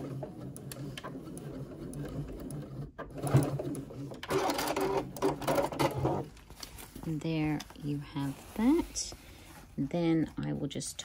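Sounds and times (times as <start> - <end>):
electric sewing machine stitching: 0.0 - 6.2.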